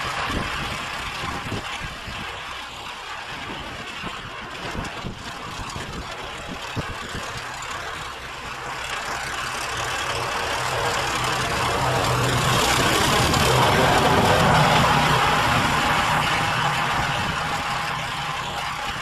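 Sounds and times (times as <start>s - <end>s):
snowblower engine under load: 0.0s - 19.0s.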